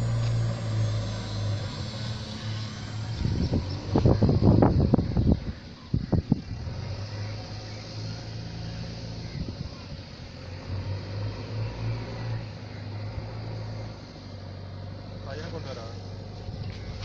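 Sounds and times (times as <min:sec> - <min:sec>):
low mechanical hum: 0:00.0 - 0:10.4.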